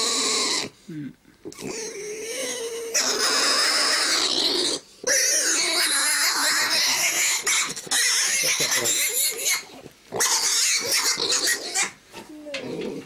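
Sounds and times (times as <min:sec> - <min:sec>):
piglet squealing: 0:01.5 - 0:12.0.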